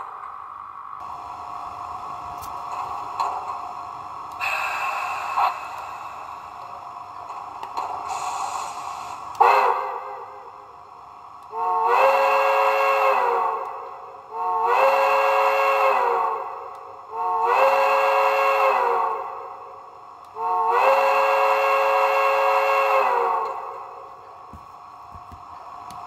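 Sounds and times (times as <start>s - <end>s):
steam locomotive whistle blasts: 8.1s - 10.4s, 11.5s - 19.5s, 20.4s - 24.0s.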